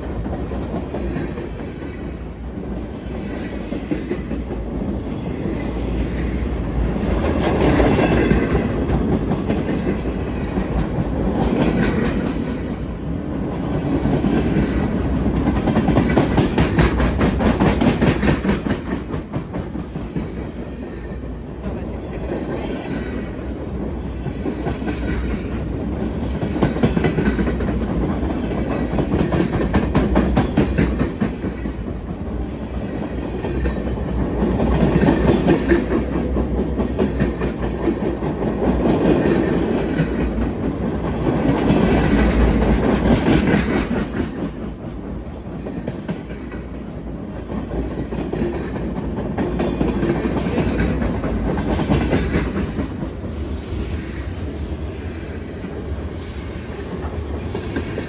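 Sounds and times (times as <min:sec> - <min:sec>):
train wheels clicking over rail joints: 0:00.0 - 0:58.0.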